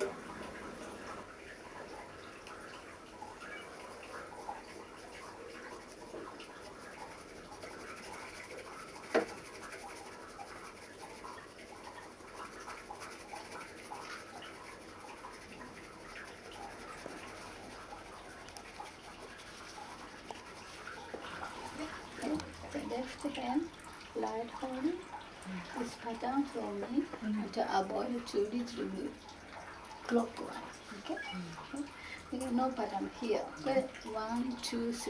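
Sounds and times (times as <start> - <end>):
tea whisk swishing in bowl: 3.2 - 29.2.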